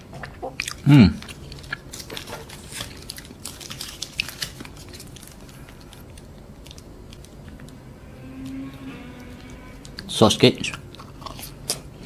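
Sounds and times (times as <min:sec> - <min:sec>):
chewing crunchy food: 0:00.1 - 0:07.4, 0:10.9 - 0:12.0.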